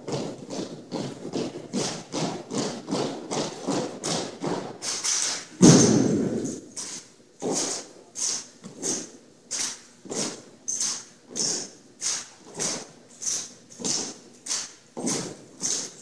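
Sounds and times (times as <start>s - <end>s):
heavy ringing impact: 5.6s - 6.8s
stomps and rifle strikes on floor: 5.6s - 7.8s.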